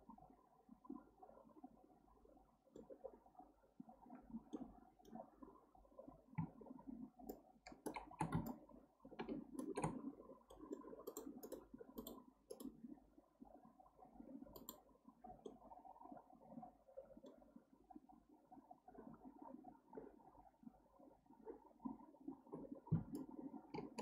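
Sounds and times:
mouse and keyboard clicking: 7.3 - 8.6, 9.2 - 12.7, 14.6 - 14.8, 23.0 - 24.0.

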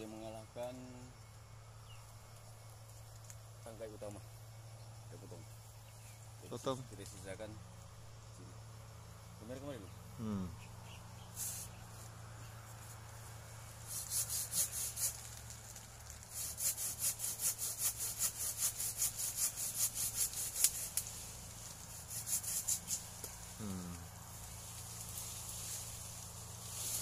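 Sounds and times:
hand saw cutting branch: 13.8 - 15.5, 16.2 - 24.0.

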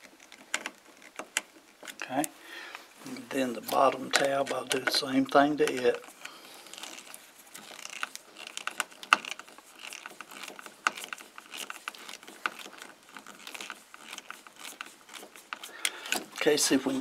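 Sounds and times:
screwdriver clicks and scrapes: 3.1 - 16.6.

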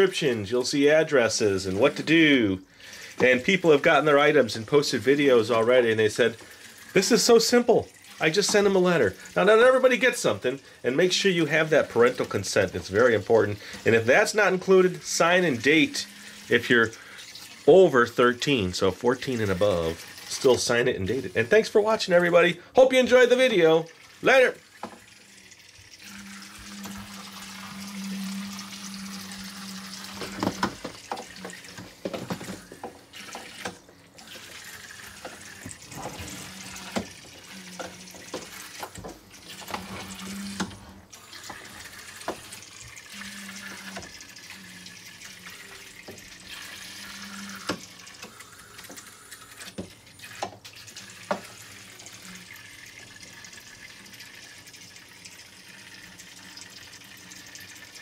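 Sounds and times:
tiny toy boat motors humming: 11.1 - 17.2, 24.2 - 58.0.

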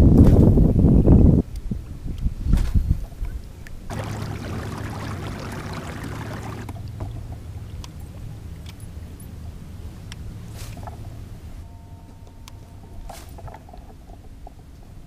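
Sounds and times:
water rushing along a hull: 3.9 - 7.3.

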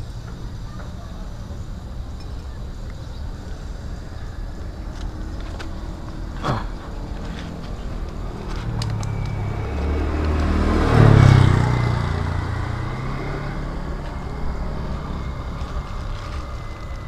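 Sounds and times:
vehicle engine driving past: 3.2 - 17.0.

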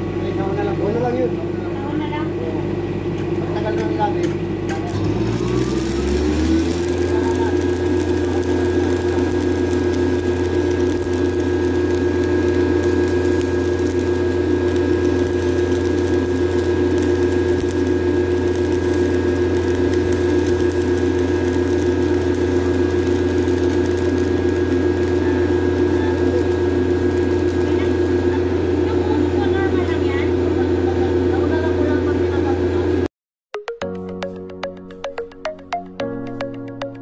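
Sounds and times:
generator engine running: 4.1 - 32.6
welding arc hiss and crackle: 4.7 - 30.0.

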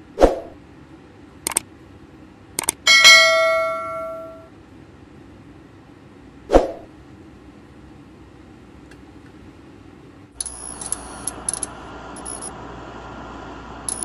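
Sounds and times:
film projector whirring: 10.3 - 14.0.

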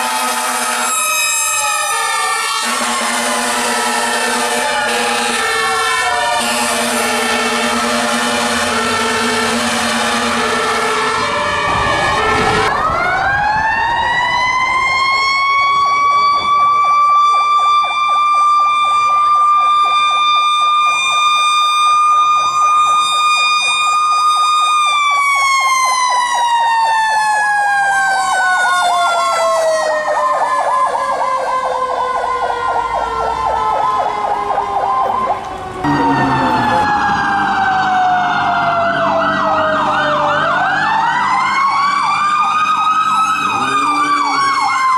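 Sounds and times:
fast warbling siren: 0.0 - 44.9
mechanical siren wailing: 0.0 - 44.9
horn blasts: 2.6 - 11.0, 35.8 - 36.9.

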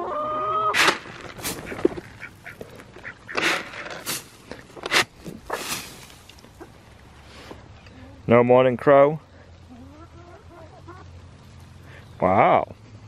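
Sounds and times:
chickens squawking: 0.0 - 6.9, 9.6 - 12.1.

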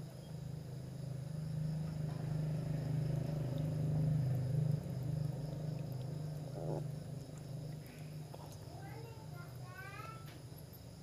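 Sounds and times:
puppy growling: 6.4 - 7.0.

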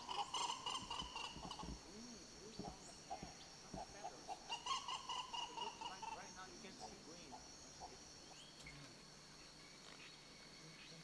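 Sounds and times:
macaws calling: 0.0 - 8.8.

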